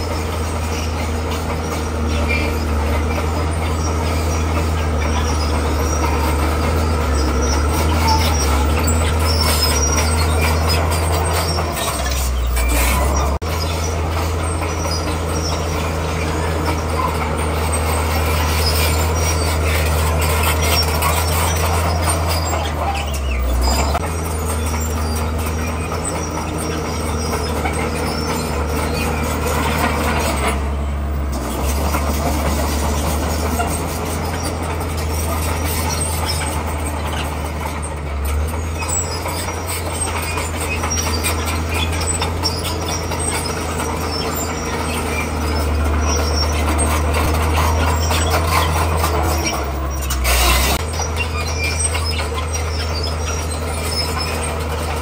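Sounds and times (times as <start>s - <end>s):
bulldozer diesel engine running: 0.0s - 55.0s
steel tracks and blade clattering: 0.0s - 55.0s.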